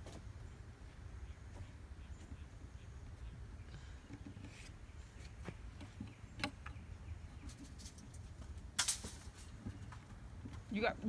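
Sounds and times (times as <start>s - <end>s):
scraping rustle: 7.3s - 10.8s.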